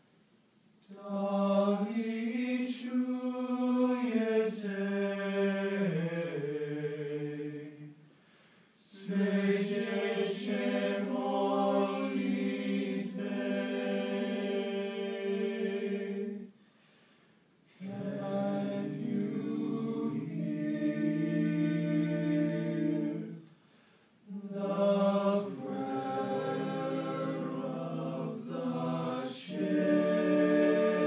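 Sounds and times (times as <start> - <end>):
male a cappella choir singing: 0.9 - 8.0, 8.8 - 16.6, 17.7 - 23.4, 24.3 - 31.0
singer breath: 8.1 - 8.8, 16.5 - 17.5, 23.5 - 24.2.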